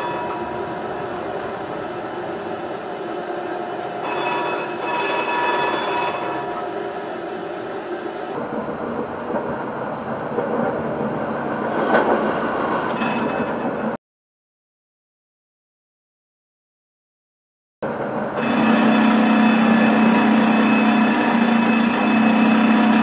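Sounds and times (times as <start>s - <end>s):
tram warning bell ringing: 0.0s - 1.7s, 3.6s - 6.8s, 12.9s - 14.0s, 18.3s - 23.0s
tram running on street track: 0.0s - 14.0s, 17.8s - 23.0s.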